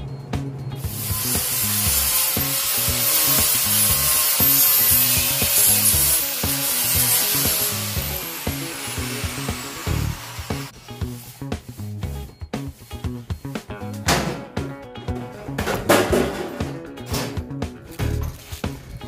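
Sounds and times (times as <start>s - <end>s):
background music with bass beat: 0.0s - 19.0s
angle grinder grinding steel: 0.8s - 11.9s.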